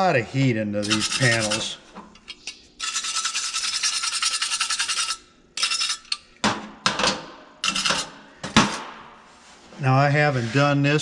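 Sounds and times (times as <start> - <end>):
wire brush scrubbing metal: 0.8 - 1.8, 2.8 - 6.0.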